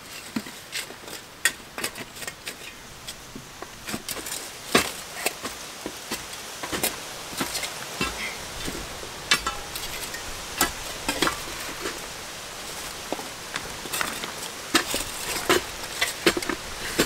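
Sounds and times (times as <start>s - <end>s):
tamping bar clacking on stones: 3.6s - 12.0s, 13.1s - 17.0s
tamping bar thudding on soil: 13.0s - 17.0s.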